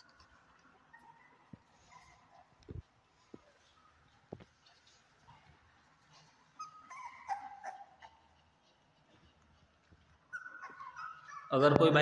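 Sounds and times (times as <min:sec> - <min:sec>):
puppy whimpering: 0:00.0 - 0:02.8, 0:06.1 - 0:09.2, 0:09.8 - 0:11.6.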